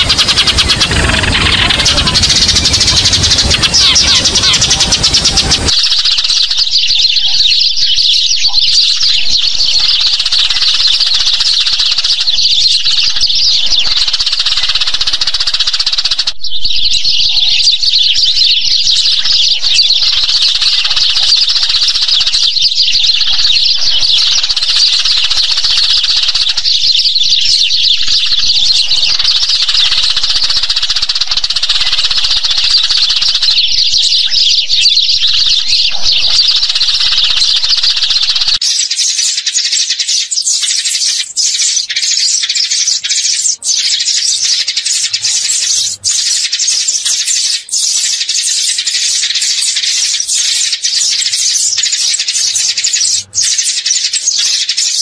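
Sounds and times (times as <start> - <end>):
sparrows chirping: 0.0 - 55.0.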